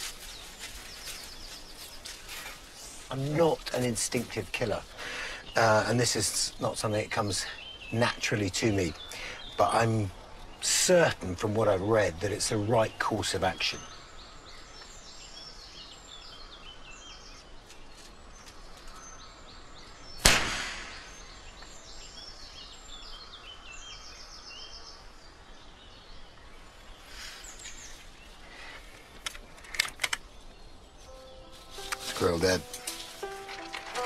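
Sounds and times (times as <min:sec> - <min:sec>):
woodland birdsong: 0:00.0 - 0:34.0
air rifle shot: 0:20.2 - 0:21.4.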